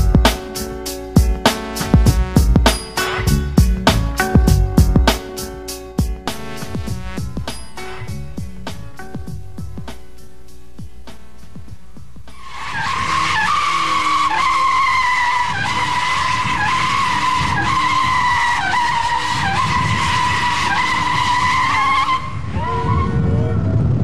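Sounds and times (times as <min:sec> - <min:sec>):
music: 0:00.0 - 0:13.0
car tyres squealing: 0:12.3 - 0:23.6.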